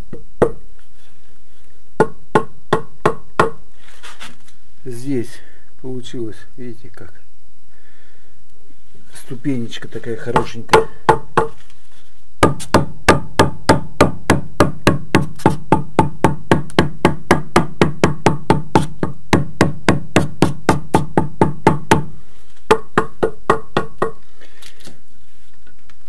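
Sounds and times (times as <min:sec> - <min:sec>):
hammer tapping concrete block: 0:22.7 - 0:24.2.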